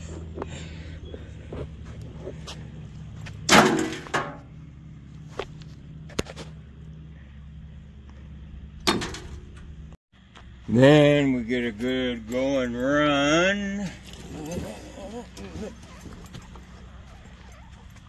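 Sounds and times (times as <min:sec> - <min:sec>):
steady low hum: 0:00.0 - 0:18.0
stones crashing into wheelbarrow: 0:03.5 - 0:04.4.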